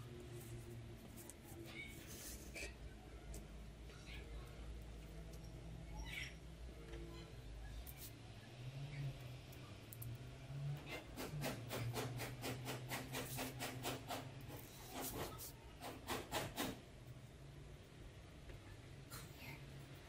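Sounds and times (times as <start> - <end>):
scratching strokes on wood: 10.9 - 16.8.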